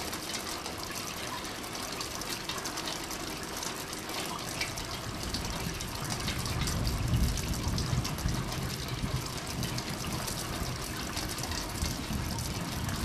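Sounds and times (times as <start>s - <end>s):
rain on foliage and roof tiles: 0.0s - 13.0s.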